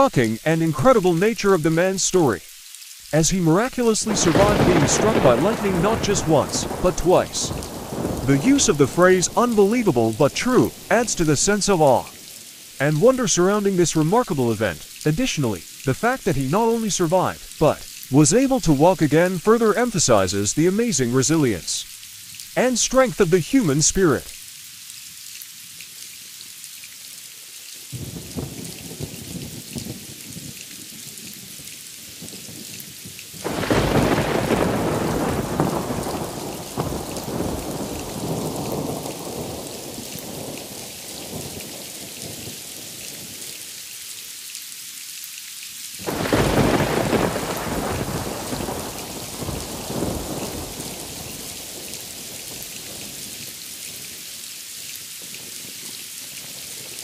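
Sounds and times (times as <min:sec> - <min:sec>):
steady rain: 0:00.0 - 0:57.0
thunder cracks and rumbling: 0:04.0 - 0:09.6, 0:33.4 - 0:40.6, 0:46.0 - 0:51.7.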